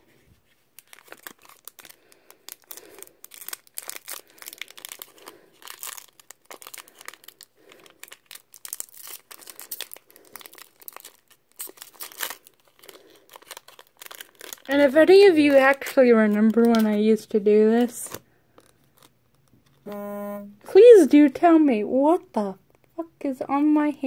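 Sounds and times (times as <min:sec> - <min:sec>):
foil pack tearing open: 0:00.8 - 0:14.7
foil wrapper crinkling: 0:00.8 - 0:17.0, 0:18.1 - 0:19.8.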